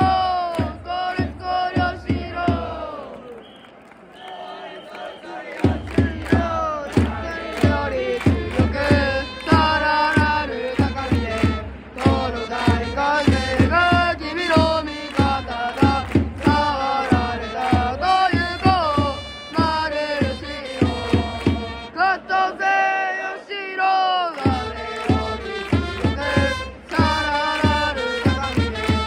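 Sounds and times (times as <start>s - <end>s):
drum beat: 0.0s - 3.0s, 5.5s - 21.8s, 24.4s - 29.0s
crowd chanting: 0.0s - 29.0s
trumpets playing: 8.7s - 22.3s, 24.5s - 29.0s.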